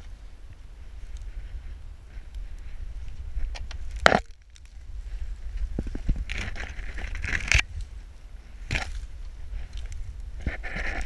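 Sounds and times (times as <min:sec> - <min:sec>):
branches and leaves crackling: 0:00.0 - 0:11.0
wind rumble on microphone: 0:00.0 - 0:11.0
loud branch crack: 0:03.5 - 0:04.8, 0:08.6 - 0:10.0.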